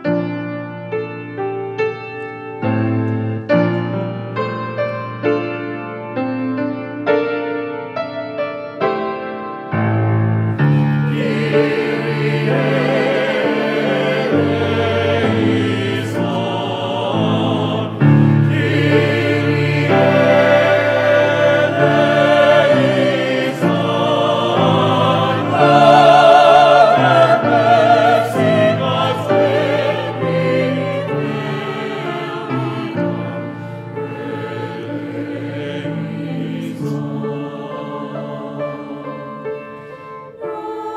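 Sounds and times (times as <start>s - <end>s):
mixed choir singing in harmony: 10.4s - 40.9s.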